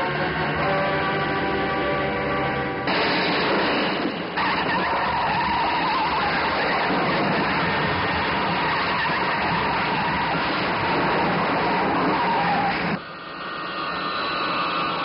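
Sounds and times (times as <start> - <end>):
thin high whine: 2.8 - 15.0
vehicle skidding and scraping: 3.0 - 13.0.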